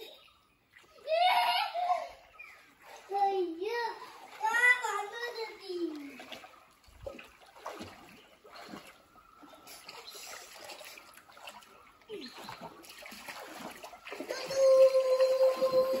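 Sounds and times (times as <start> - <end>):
swimmer splashing in water: 4.0 - 16.0.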